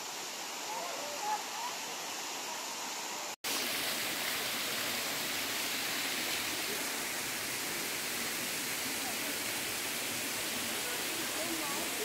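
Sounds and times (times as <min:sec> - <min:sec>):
waterfall pouring onto rocks: 0:03.5 - 0:12.0.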